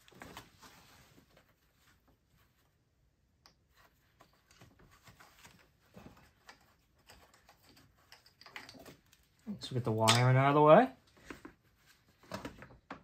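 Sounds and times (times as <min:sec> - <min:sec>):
clicks and handling noise: 0:03.4 - 0:13.0.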